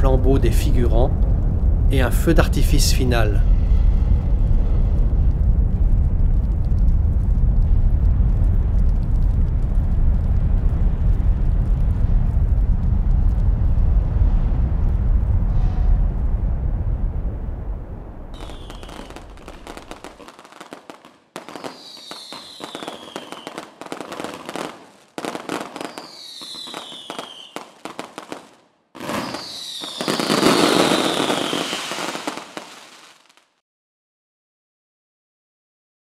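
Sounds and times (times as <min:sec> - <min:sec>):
low rumble: 0:00.0 - 0:20.2
falling whistle: 0:18.4 - 0:19.1, 0:21.5 - 0:23.6, 0:25.9 - 0:27.6, 0:29.2 - 0:32.0
fireworks crackling: 0:18.4 - 0:33.6.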